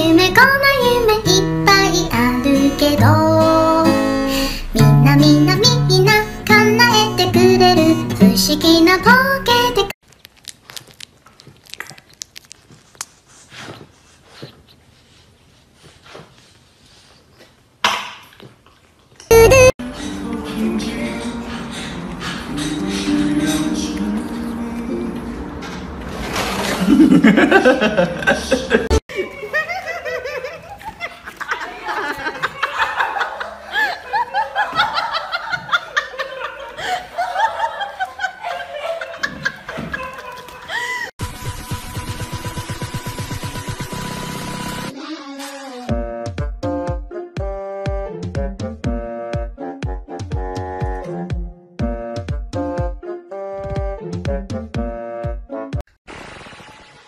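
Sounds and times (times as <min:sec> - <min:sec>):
puppy mouth clicks: 0:10.1 - 0:13.2
puppy breathy snuffles: 0:13.1 - 0:15.1
high-pitched laughter: 0:26.9 - 0:41.1.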